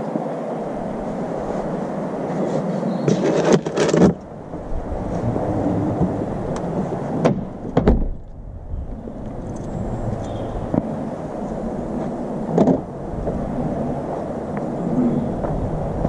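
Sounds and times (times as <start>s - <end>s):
rumbling from walking: 1.0s - 16.0s
sharp knocks: 7.2s - 8.2s.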